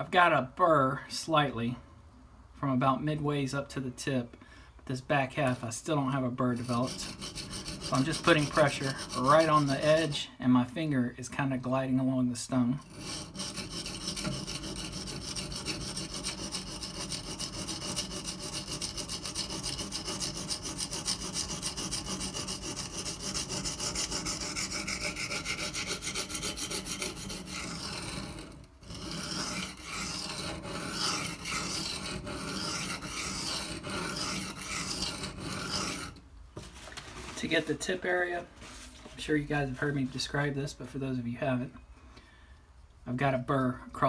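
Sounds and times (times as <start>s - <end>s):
knife rasping on sharpening stone: 6.6s - 10.0s, 12.8s - 36.2s.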